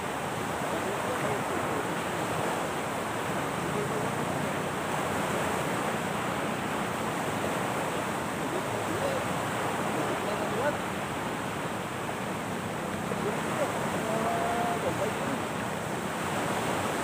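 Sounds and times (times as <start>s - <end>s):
surf on shore: 0.0s - 17.0s
wind: 0.0s - 17.0s
faint voices: 0.6s - 6.6s, 7.6s - 11.0s, 12.2s - 15.9s.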